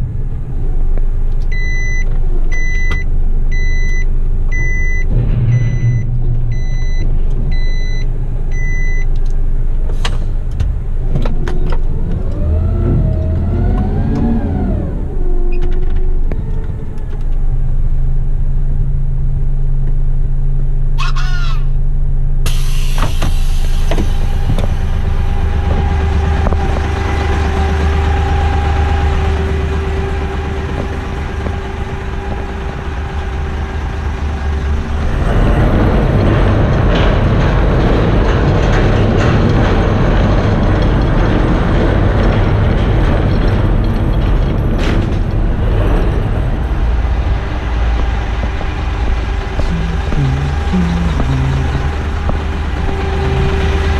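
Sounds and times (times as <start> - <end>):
truck diesel engine: 0.0 - 53.9
reversing beeps: 1.5 - 9.1
hiss: 22.5 - 24.5.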